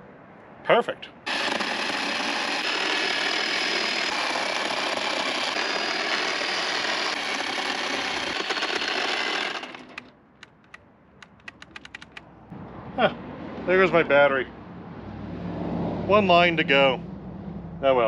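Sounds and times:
power tool cutting rubber: 0:01.3 - 0:10.1.

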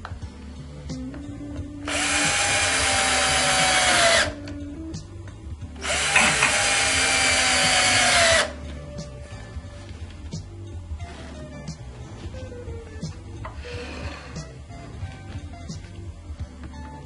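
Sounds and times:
electric drill running: 0:01.9 - 0:04.4, 0:05.8 - 0:08.6.

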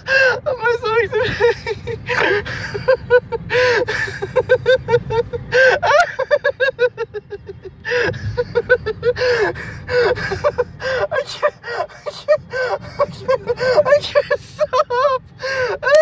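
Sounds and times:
car road noise rumble: 0:00.0 - 0:16.0
person laughing hard: 0:00.0 - 0:16.0
loud gasping breaths: 0:09.2 - 0:13.9, 0:15.4 - 0:15.8.

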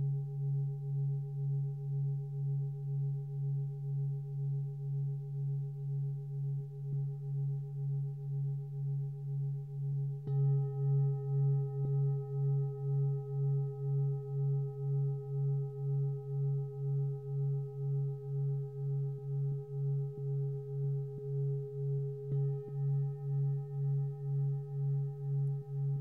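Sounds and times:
singing bowl ringing: 0:10.2 - 0:26.0
singing bowl struck: 0:10.3 - 0:26.0.

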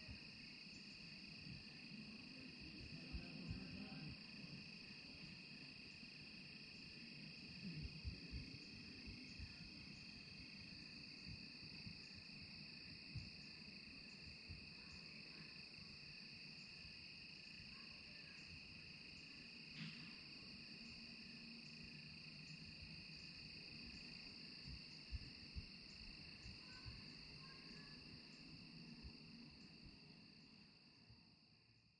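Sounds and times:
crickets trilling: 0:00.0 - 0:31.9
faint low rumble: 0:01.5 - 0:04.2.

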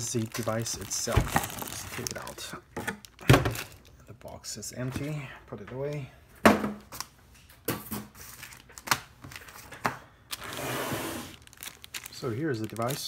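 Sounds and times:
plastic wrap crinkling: 0:00.0 - 0:04.4, 0:08.2 - 0:10.6, 0:11.2 - 0:13.0.

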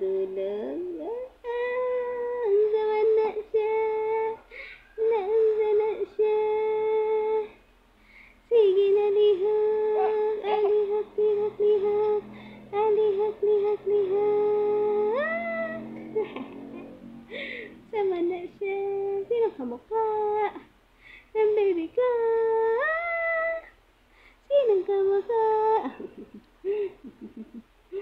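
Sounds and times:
high voice vocalising: 0:09.5 - 0:18.0.

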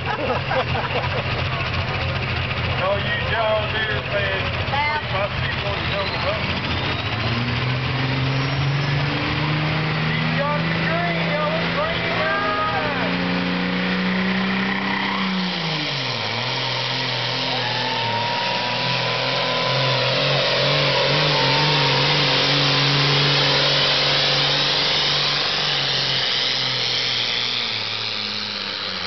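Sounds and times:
tractor engine running under load: 0:00.0 - 0:09.4, 0:15.8 - 0:29.0.

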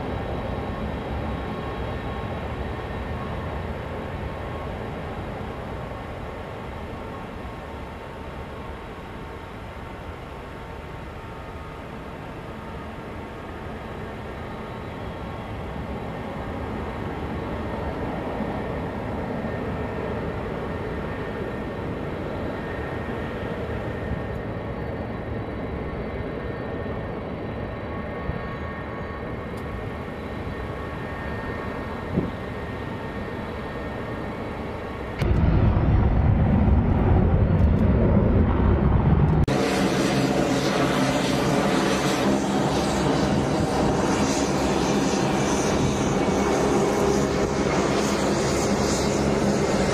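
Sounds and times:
jet engines roaring on takeoff: 0:00.0 - 0:49.9.

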